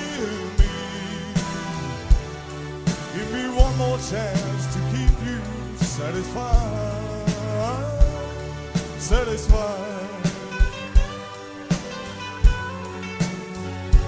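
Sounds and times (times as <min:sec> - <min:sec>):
live band playing a slow ballad: 0:00.0 - 0:14.0.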